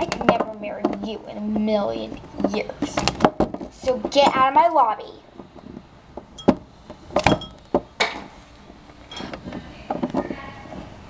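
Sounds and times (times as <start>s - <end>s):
plastic toys tapping and clicking: 0.0s - 1.8s.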